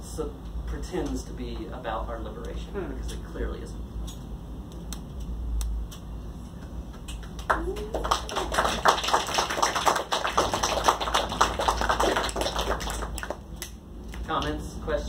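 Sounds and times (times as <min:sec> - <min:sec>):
audience applauding: 0:07.2 - 0:13.4.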